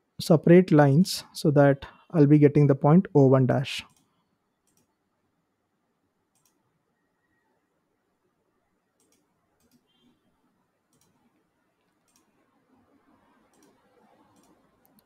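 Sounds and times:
computer mouse clicks: 3.9s - 5.0s, 6.3s - 6.6s, 9.0s - 10.2s, 10.9s - 15.0s.

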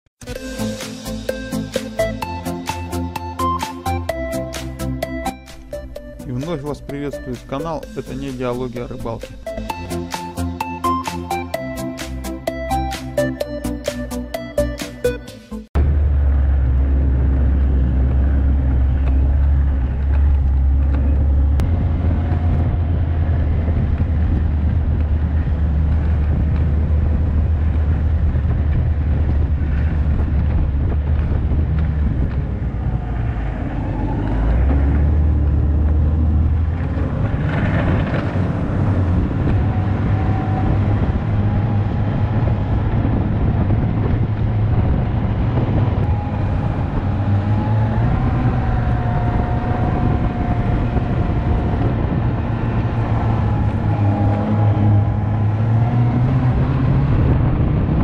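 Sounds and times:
snowmobile engine running: 15.8s - 58.0s.

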